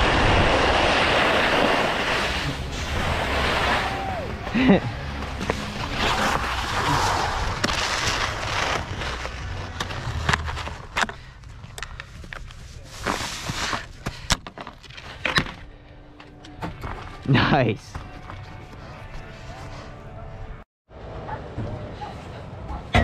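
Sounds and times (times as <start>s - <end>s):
skis sliding over snow: 0.0s - 11.0s, 12.4s - 14.0s
skis scraping: 0.0s - 11.1s, 12.3s - 14.0s
skis clicking and knocking: 4.6s - 15.7s.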